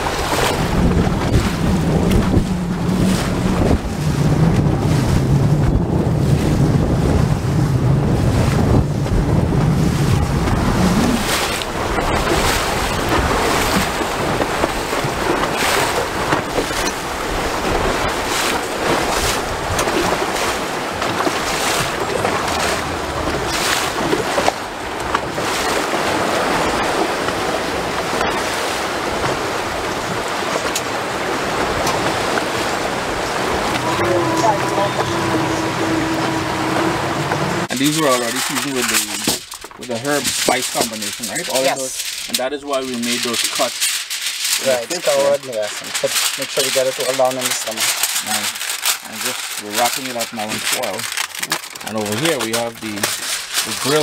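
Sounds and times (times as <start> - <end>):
small boat engine running: 0.0 - 38.4
wind buffeting microphone: 0.0 - 43.5
water splashing against hull: 0.0 - 54.0.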